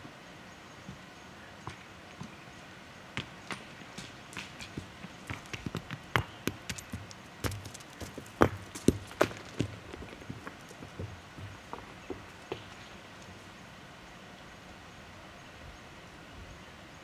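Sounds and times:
sharp clicks and knocks on rock: 3.5 - 12.9.

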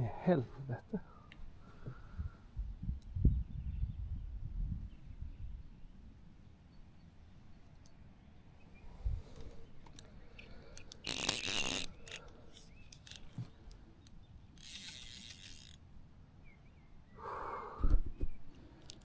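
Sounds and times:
small clicks: 9.8 - 15.8, 17.8 - 19.0
fishing reel whirring: 10.7 - 13.4, 14.6 - 15.8.

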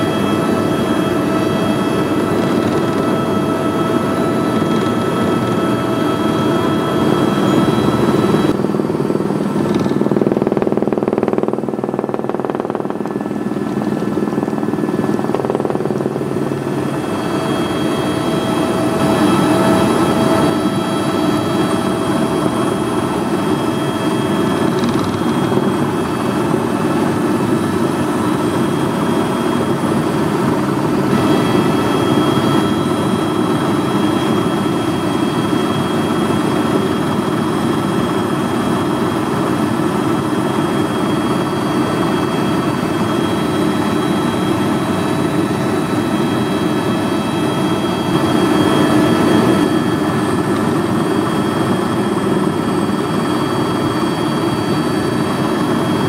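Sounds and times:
helicopter turbine and rotor noise: 0.0 - 56.0
faint high whines: 9.2 - 26.2.

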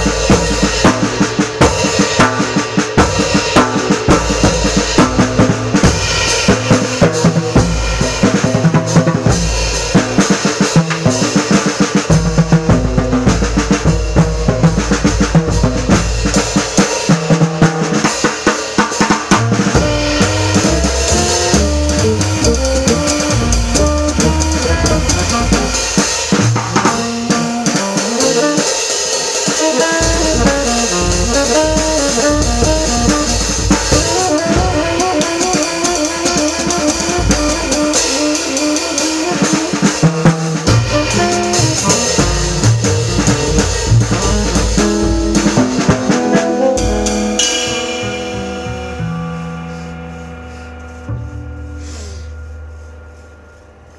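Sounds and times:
jazz drum kit: 0.0 - 53.9
upright bass notes: 19.3 - 28.6, 29.6 - 38.9, 40.7 - 53.9
instruments playing pitched lines: 19.8 - 26.0.

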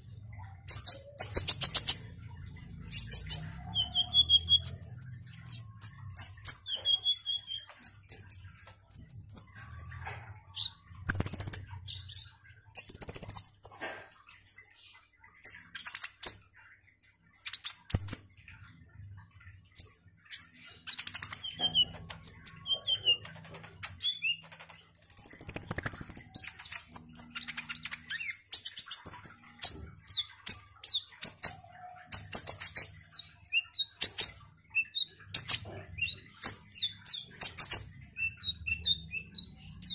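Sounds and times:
bird singing high chirps: 0.0 - 10.0, 19.8 - 39.9.

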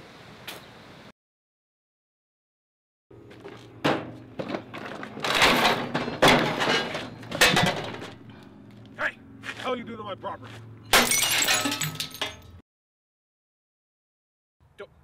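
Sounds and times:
heavy chain clanking and rattling: 4.4 - 8.2.

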